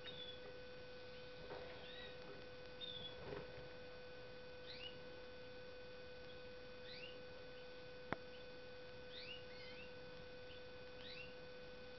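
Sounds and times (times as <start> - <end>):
bird chirping: 0.0 - 2.2, 2.8 - 3.2, 4.6 - 5.0, 6.3 - 11.4
electrical hum: 0.0 - 11.9.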